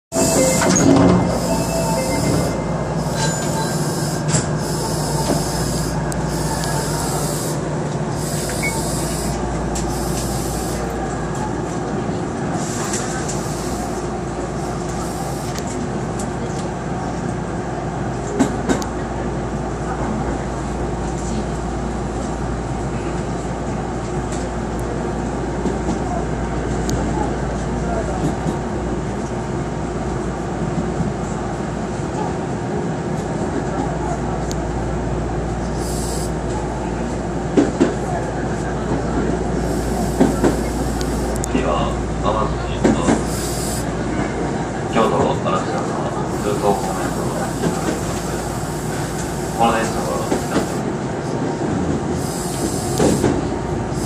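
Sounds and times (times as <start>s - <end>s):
high-pitched train sound: 0.1s - 16.1s, 35.4s - 54.0s
electric train motor and wheels on rails: 0.1s - 54.0s.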